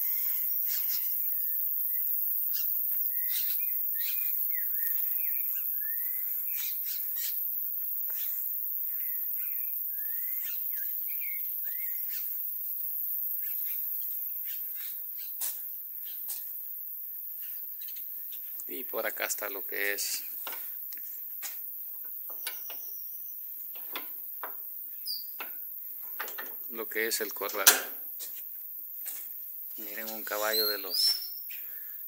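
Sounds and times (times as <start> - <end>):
birds whistling calls: 0.0 - 7.4, 8.1 - 12.3, 30.2 - 31.6
background noise: 0.0 - 32.0.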